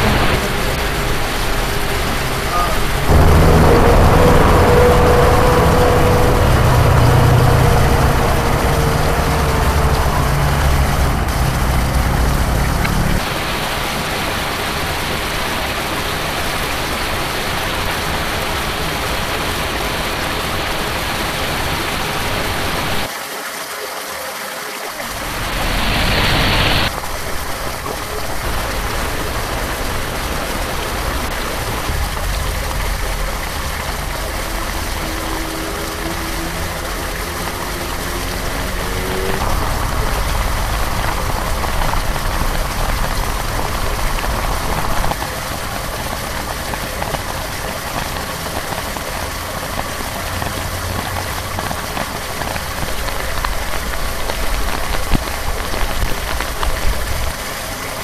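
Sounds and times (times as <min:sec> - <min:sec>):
faint rising hum: 0:00.0 - 0:13.2
low rumble: 0:00.0 - 0:13.5, 0:25.1 - 0:48.4
rain falling on puddles: 0:00.0 - 0:58.0
water rushing into storm drain: 0:00.0 - 0:58.0.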